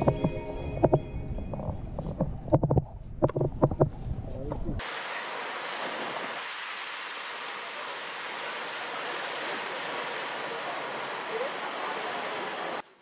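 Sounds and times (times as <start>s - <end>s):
water rushing along boat hull: 4.6s - 13.0s.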